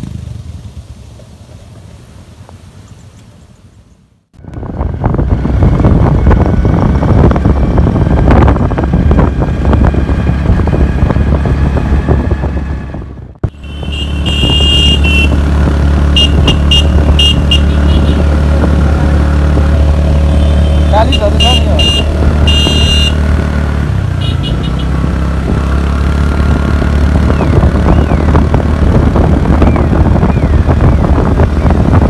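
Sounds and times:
wind on microphone: 4.4s - 20.3s, 24.8s - 32.0s
motorcycle engine running: 4.4s - 32.0s.

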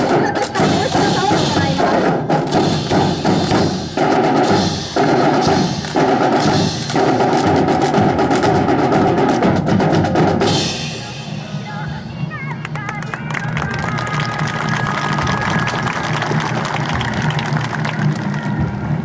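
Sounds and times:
drum-led band music: 0.0s - 19.0s.

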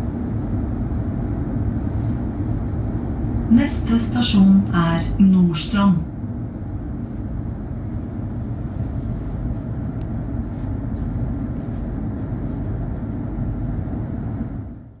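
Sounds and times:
train running rumble: 0.0s - 15.0s.

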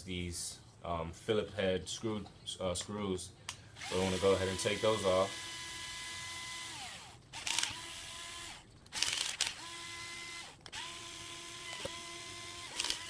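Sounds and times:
cordless drill motor whining: 3.8s - 13.0s.

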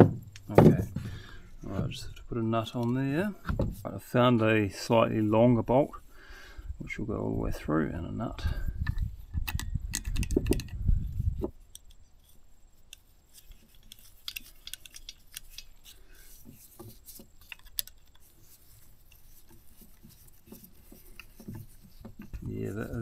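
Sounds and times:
metallic clicks and rattles: 8.8s - 10.9s, 12.9s - 16.0s, 17.4s - 18.3s.

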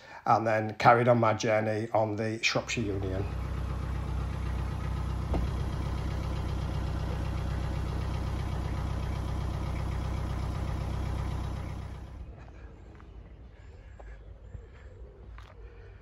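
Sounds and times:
diesel boat engine chugging: 2.7s - 14.2s.

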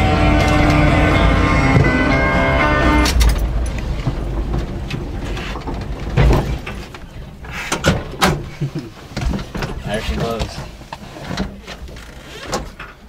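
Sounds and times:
music playing: 0.0s - 3.6s
truck engine droning: 0.0s - 10.6s
road noise inside cab: 0.0s - 13.0s.

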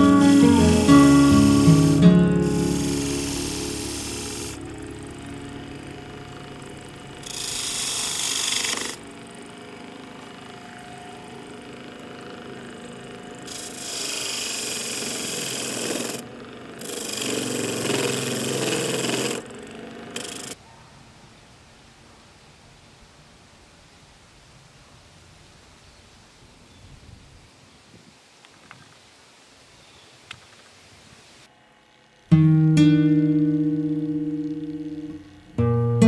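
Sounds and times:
turning tool scraping wood: 0.0s - 5.2s, 5.9s - 10.5s, 11.4s - 20.6s
wood lathe humming: 0.0s - 20.6s, 33.7s - 35.4s.

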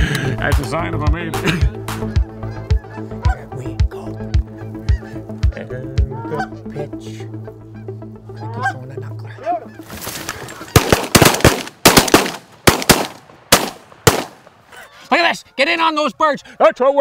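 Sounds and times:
music with steady beat: 0.0s - 6.2s
geese honking: 1.7s - 11.6s, 14.7s - 17.0s
shotgun blasts: 10.7s - 14.6s.

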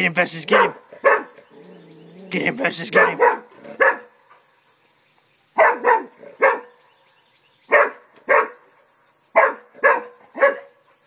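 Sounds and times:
dog barking: 0.5s - 1.4s, 2.9s - 4.2s, 5.6s - 6.8s, 7.7s - 8.6s, 9.4s - 10.8s.

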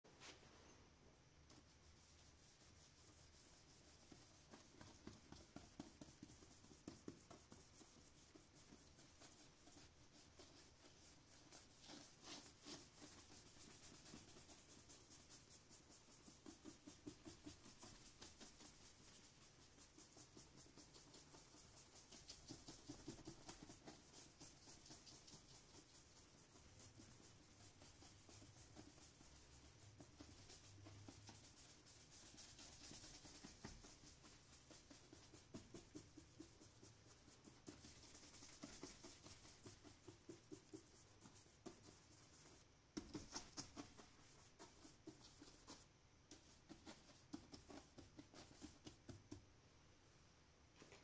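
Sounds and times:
brush rubbing across paper: 1.5s - 49.4s.

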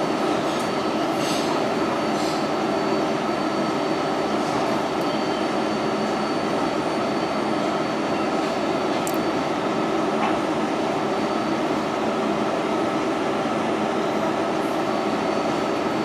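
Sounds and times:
thin high whine: 0.0s - 10.0s
subway car wheels rumbling: 0.0s - 16.0s.

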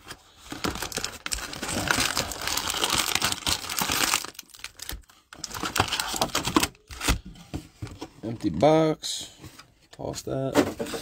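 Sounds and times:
plastic wrappers crinkling: 0.0s - 7.2s.

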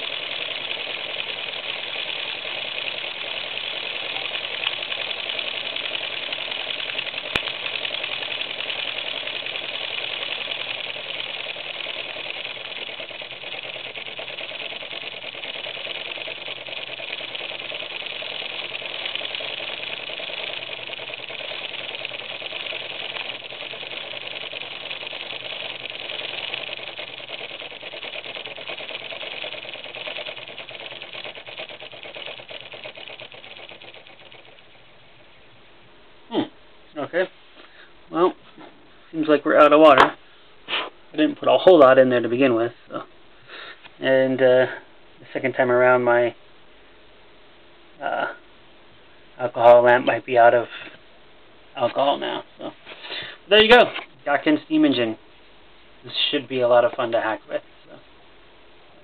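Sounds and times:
toy steam engine running: 0.0s - 34.9s, 51.8s - 55.2s, 56.1s - 57.6s.

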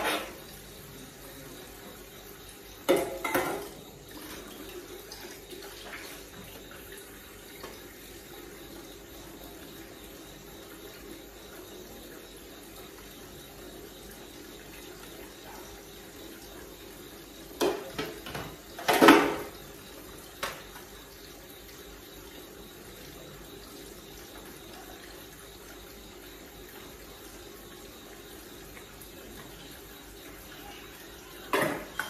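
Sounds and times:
dishes clattering: 0.0s - 0.4s, 2.9s - 3.8s, 17.6s - 19.6s, 31.5s - 32.0s
tap running into sink: 17.6s - 19.6s, 31.5s - 32.0s.

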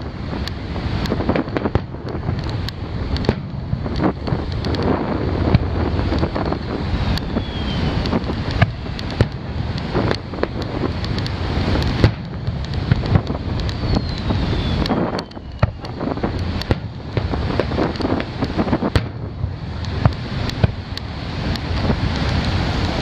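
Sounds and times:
fireworks bangs and cracks: 0.0s - 23.0s
surf: 0.0s - 23.0s
wind on microphone: 0.0s - 23.0s
falling whistle: 7.2s - 8.0s, 13.8s - 15.8s.

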